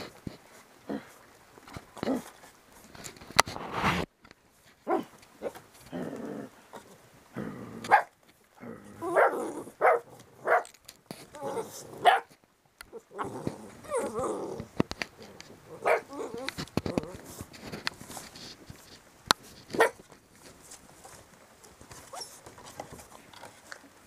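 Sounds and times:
puppies barking: 9.0s - 10.7s, 11.4s - 12.3s, 15.7s - 16.4s.

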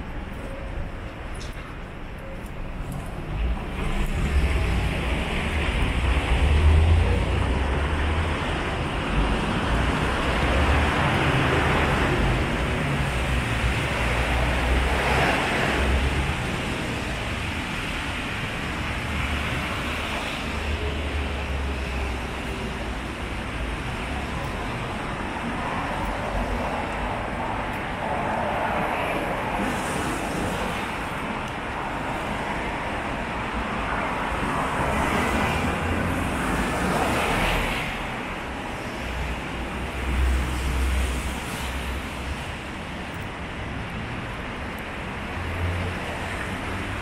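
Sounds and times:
cars passing: 2.6s - 47.0s.

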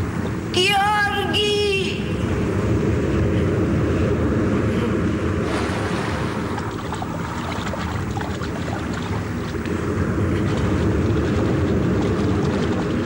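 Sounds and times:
wind: 0.0s - 13.0s
surf against rocks: 5.4s - 13.0s.

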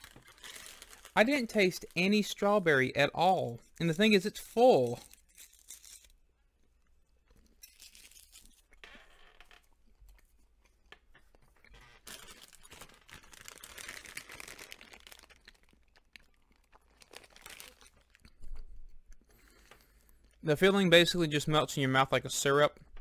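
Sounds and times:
candy wrapper crinkling: 0.0s - 6.3s, 6.9s - 8.9s, 11.7s - 19.0s.

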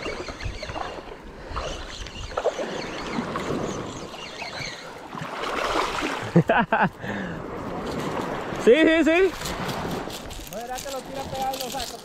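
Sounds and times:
seawater lapping and sloshing: 0.0s - 8.7s.

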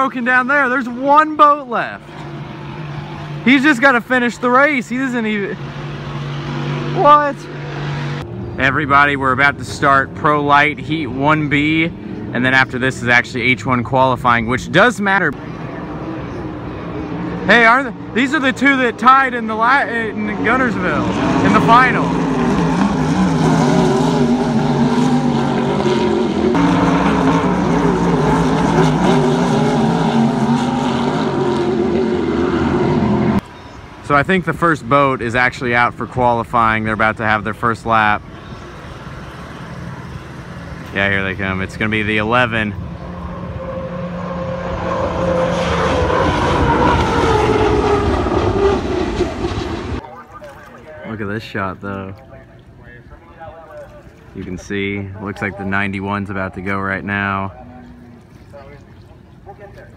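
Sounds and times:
racing boat engines droning: 0.0s - 59.9s.

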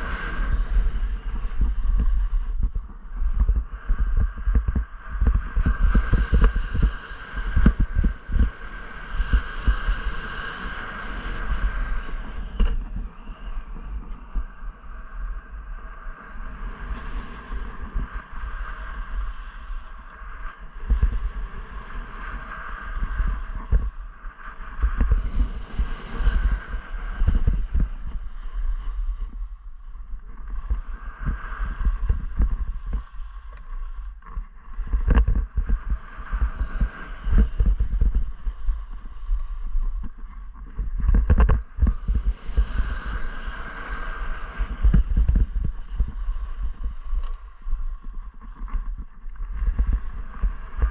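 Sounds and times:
wind rumbling on microphone: 0.0s - 50.9s
skis scraping over snow: 15.8s - 50.9s.

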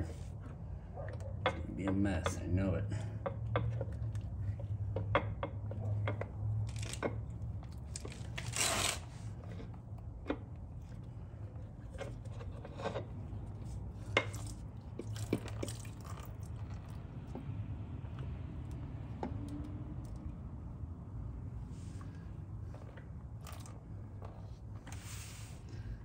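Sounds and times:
low steady hum: 0.0s - 26.0s
metal scrape: 8.2s - 9.3s.

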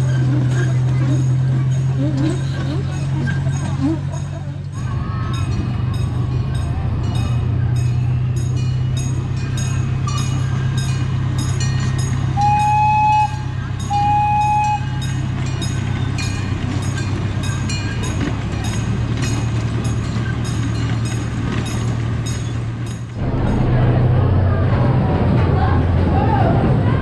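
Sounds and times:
miniature train engine hum: 0.0s - 27.0s
train toots: 9.6s - 22.6s.

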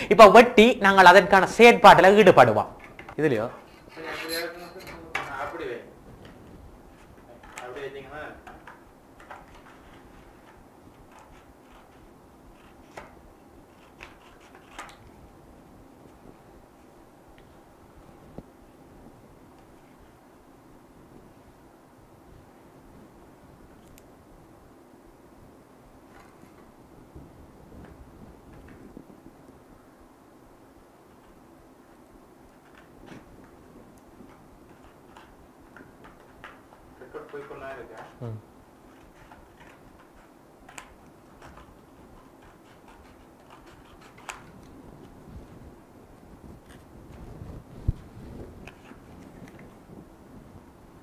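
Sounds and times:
faint room noise: 0.0s - 51.0s
scissors cutting card: 13.7s - 15.0s.

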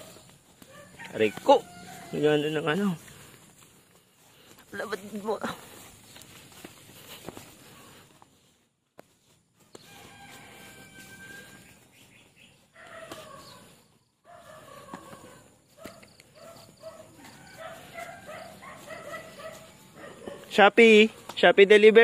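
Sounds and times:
rooster crowing: 0.0s - 2.7s, 9.7s - 11.8s, 12.8s - 15.5s, 16.4s - 20.4s.

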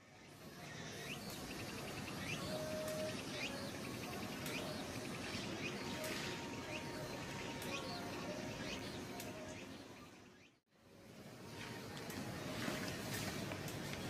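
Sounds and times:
bird chirping: 0.0s - 10.6s
outdoor background hiss: 0.0s - 14.0s.

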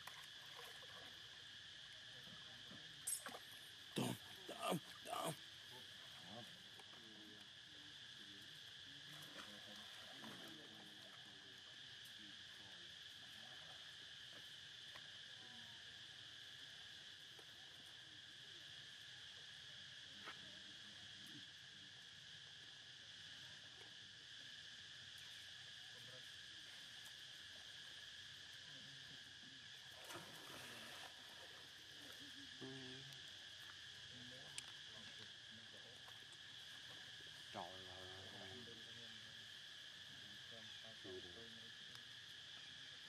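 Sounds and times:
high-pitched insect drone: 24.2s - 43.0s.

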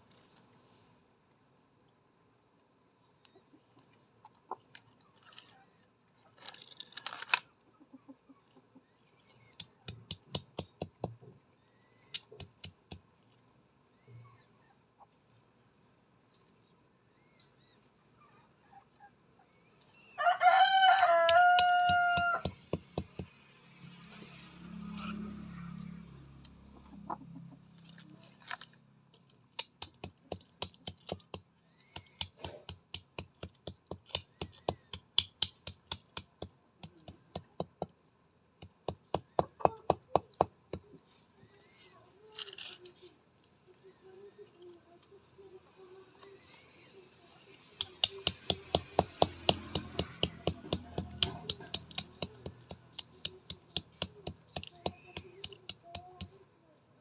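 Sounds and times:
rooster crowing: 20.2s - 22.5s
chickens pecking at dirt: 20.2s - 23.4s, 29.5s - 37.8s, 47.8s - 56.3s.

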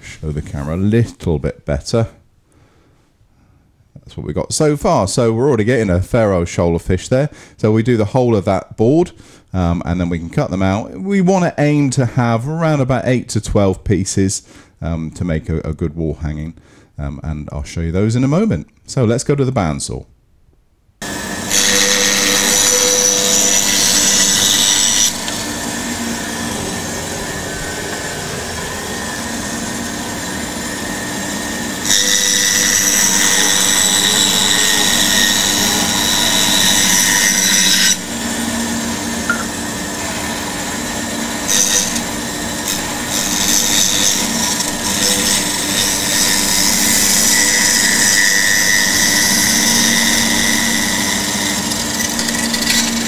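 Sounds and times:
bandsaw cutting wood: 21.0s - 53.0s.

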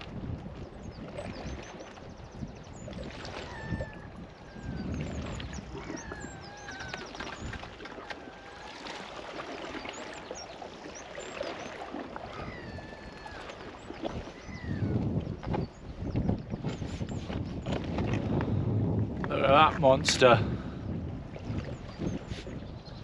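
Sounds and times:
sea water lapping: 0.0s - 23.0s
wind: 0.0s - 23.0s
birds whistling and trilling: 0.9s - 8.9s, 9.7s - 17.7s, 21.8s - 23.0s.

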